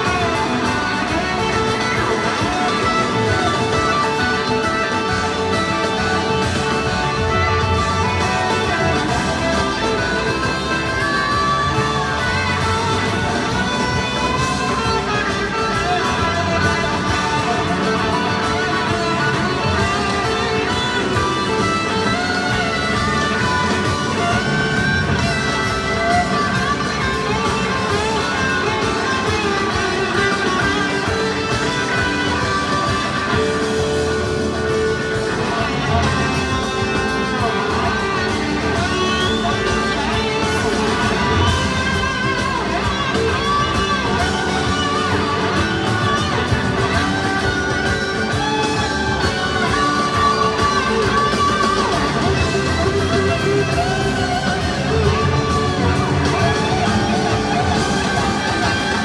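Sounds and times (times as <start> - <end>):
bass guitar: 0.0 - 59.0
drums: 0.0 - 59.0
electric lead guitar: 0.0 - 59.0.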